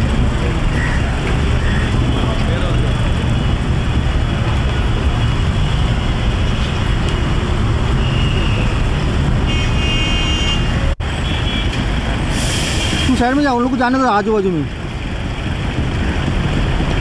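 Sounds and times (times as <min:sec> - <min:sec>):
pedestrians talking: 0:00.0 - 0:17.0
street traffic noise: 0:00.0 - 0:17.0
car horn: 0:07.9 - 0:08.8, 0:09.4 - 0:11.8.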